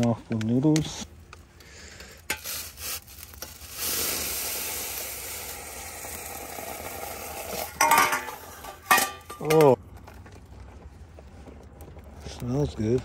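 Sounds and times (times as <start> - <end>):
noodles sizzling in pot: 2.2 - 9.2.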